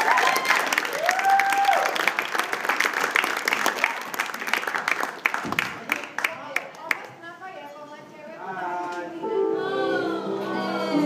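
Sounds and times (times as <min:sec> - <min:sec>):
audience applauding: 0:00.0 - 0:07.1.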